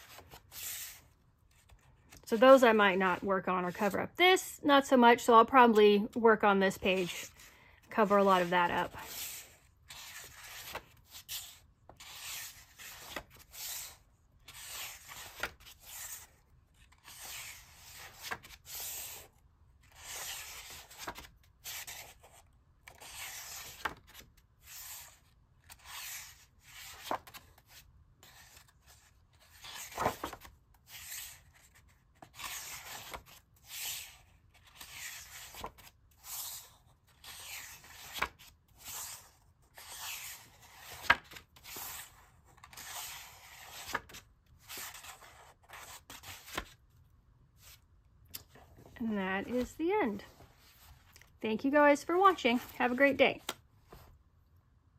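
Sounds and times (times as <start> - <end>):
stiff paper pages turning: 7.0 - 46.8.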